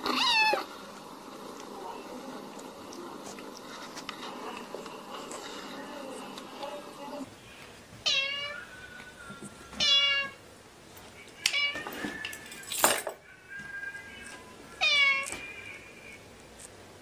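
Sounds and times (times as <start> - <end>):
cat meowing: 0.0 - 0.7, 8.0 - 8.6, 9.8 - 10.4, 11.5 - 12.0, 14.8 - 15.4.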